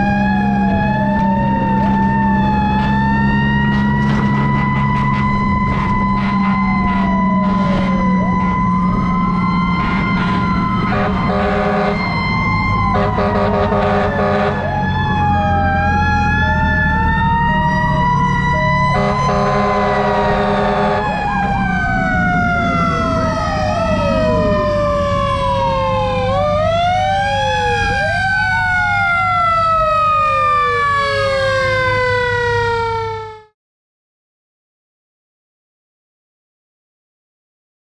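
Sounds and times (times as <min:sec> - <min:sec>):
truck engine low rumble: 0:00.0 - 0:33.3
fire truck sirens wailing: 0:00.0 - 0:33.6
pulsed horn blasts: 0:03.6 - 0:08.6, 0:09.7 - 0:14.9, 0:18.8 - 0:25.6.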